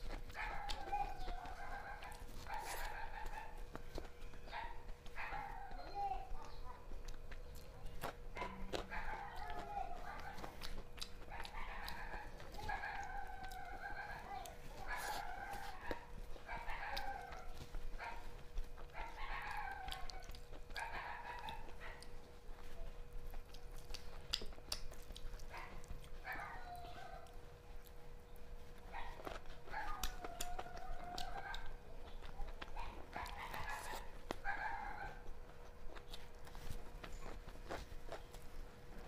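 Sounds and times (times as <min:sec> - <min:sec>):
faint steady hum: 0:00.0 - 0:39.0
chickens calling: 0:00.4 - 0:06.7.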